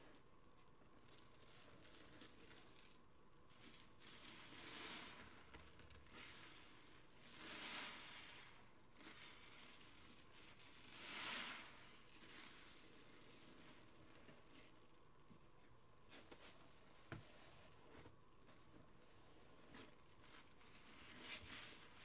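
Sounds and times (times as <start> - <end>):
foam fizzing: 7.3 - 13.9.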